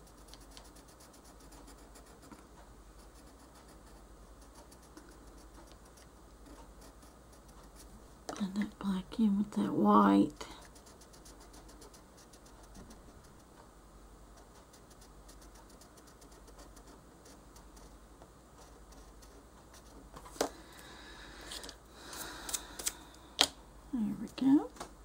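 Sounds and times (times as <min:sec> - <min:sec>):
colored pencil scratching on paper: 0:00.0 - 0:08.0, 0:08.6 - 0:13.6, 0:14.3 - 0:20.1.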